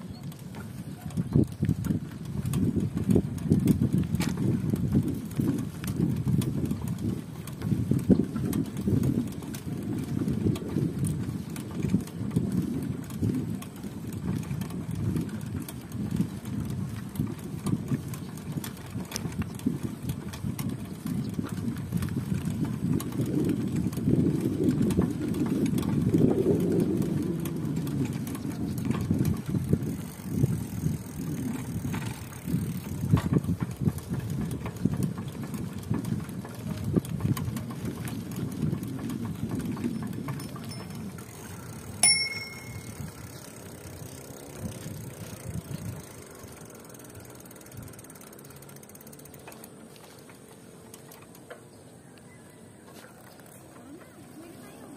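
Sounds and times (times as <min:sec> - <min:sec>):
bicycle tyres rumbling: 0:00.0 - 0:54.9
small clicks: 0:46.2 - 0:54.1.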